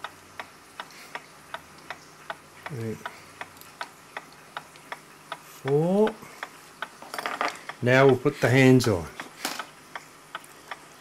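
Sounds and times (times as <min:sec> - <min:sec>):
clock ticking: 0:00.0 - 0:11.0.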